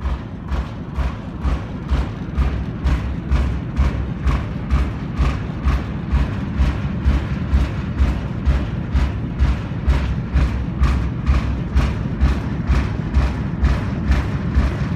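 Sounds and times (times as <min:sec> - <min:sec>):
pulsing low thumps with clicks: 0:00.0 - 0:14.9.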